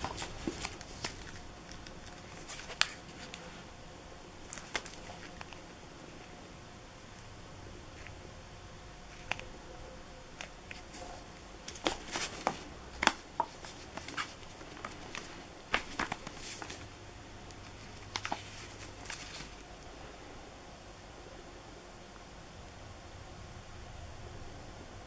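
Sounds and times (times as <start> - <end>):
cardboard tubes knocking and rustling: 0.0 - 1.4, 10.7 - 16.8.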